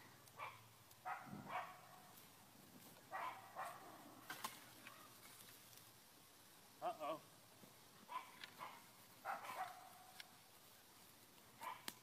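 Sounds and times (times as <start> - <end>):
dog barking: 0.4 - 2.1, 3.1 - 4.0, 8.1 - 10.2, 11.6 - 11.9.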